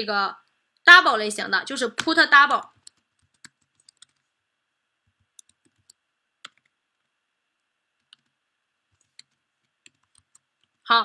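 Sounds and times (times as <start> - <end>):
faint keyboard keystrokes: 2.8 - 4.3.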